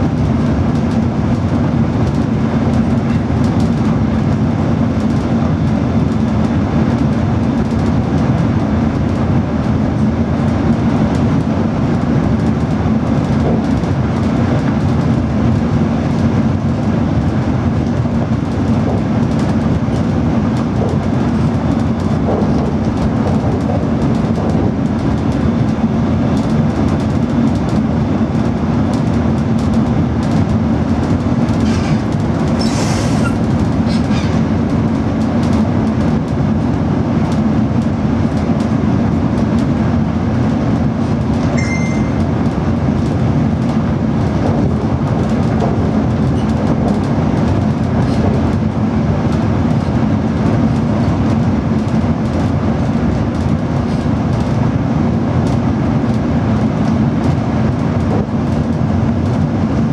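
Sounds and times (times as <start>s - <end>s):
train wheels rumbling on rail: 0.0s - 59.9s
short high beep: 41.6s - 42.2s.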